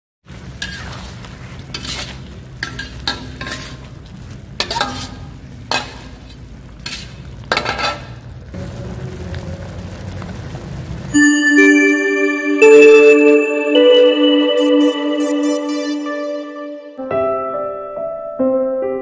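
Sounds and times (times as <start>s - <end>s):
food frying: 0.2s - 11.3s
spatula scraping steel wok: 0.5s - 8.2s.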